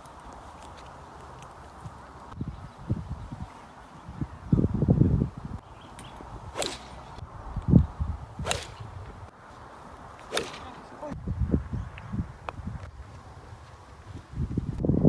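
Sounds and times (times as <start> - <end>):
golf driver striking ball: 8.4 - 8.8.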